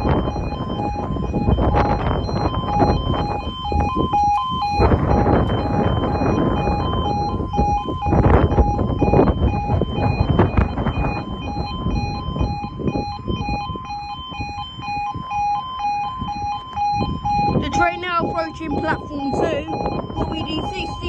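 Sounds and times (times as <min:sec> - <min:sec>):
rumbling noise: 0:00.0 - 0:13.6
level crossing alarm two tones: 0:00.0 - 0:21.0.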